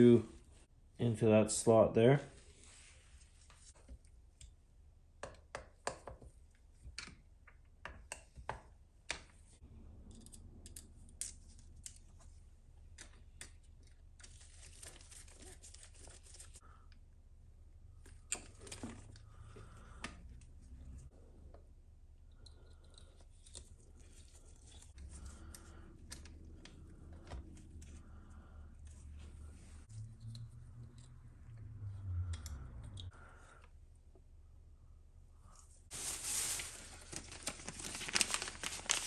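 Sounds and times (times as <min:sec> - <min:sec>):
rustling: 0:35.6 - 0:39.0.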